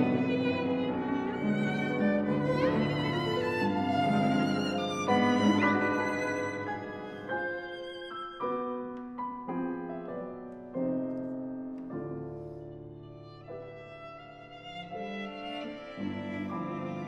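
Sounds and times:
string quartet playing slow chords: 0.0 - 8.2.

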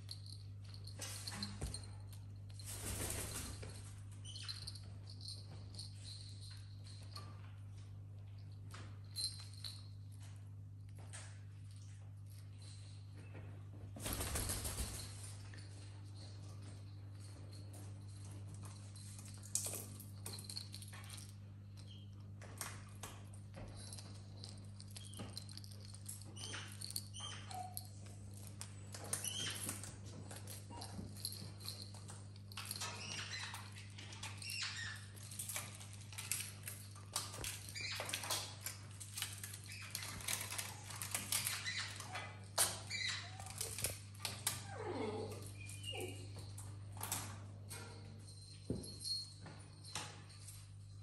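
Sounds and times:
metal bell jingling: 3.1 - 7.4, 23.7 - 38.6, 45.0 - 51.0.

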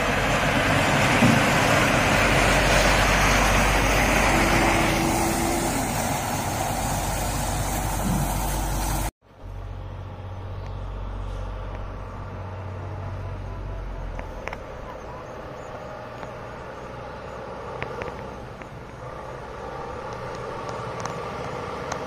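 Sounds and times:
road ambience: 0.0 - 22.0
truck driving past: 0.0 - 22.0.

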